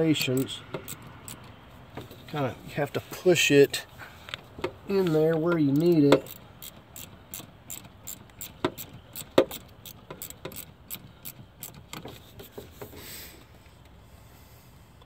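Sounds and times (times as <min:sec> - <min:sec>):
ratchet wrench clicking: 0:00.1 - 0:01.5, 0:05.6 - 0:12.1.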